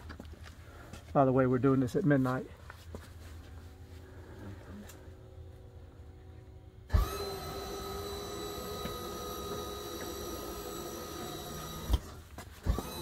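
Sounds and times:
hydraulic pump motor whining: 0:04.5 - 0:13.0.

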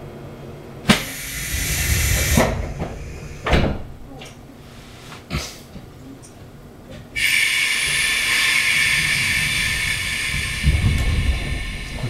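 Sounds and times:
compressed air hissing: 0:00.9 - 0:04.0, 0:07.2 - 0:12.0.

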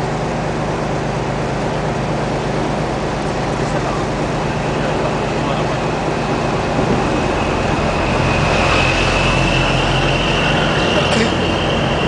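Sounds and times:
boat engine running: 0:00.0 - 0:12.0
steady rushing noise: 0:00.0 - 0:12.0
thin high whine: 0:03.1 - 0:12.0.

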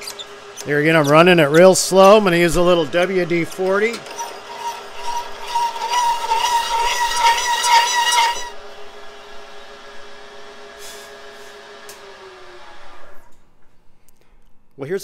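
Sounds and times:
drill press running: 0:00.0 - 0:13.9
high-pitched squeal from metal cutting: 0:03.6 - 0:08.6.

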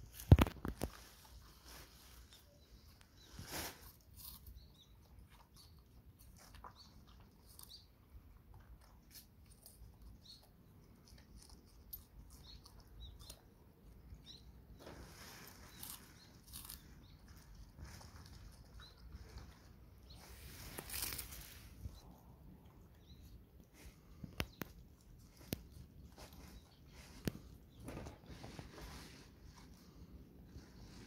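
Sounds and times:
dog chewing cabbage leaves: 0:03.8 - 0:14.2, 0:15.4 - 0:21.4.

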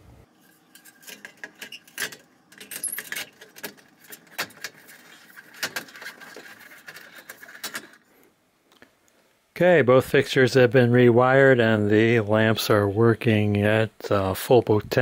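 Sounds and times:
sheet metal clicking and rattling: 0:00.8 - 0:08.0.

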